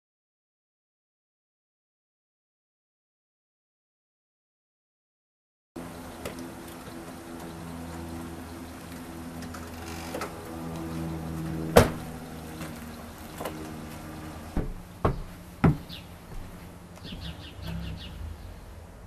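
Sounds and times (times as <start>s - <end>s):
low steady hum: 5.8s - 19.0s
car door slamming: 11.8s - 12.0s
sharp knocks: 14.6s - 16.0s.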